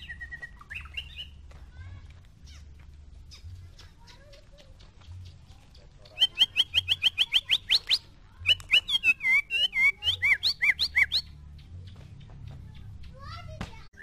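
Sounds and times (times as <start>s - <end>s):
songbird singing whistles: 0.0s - 1.4s, 5.1s - 12.0s.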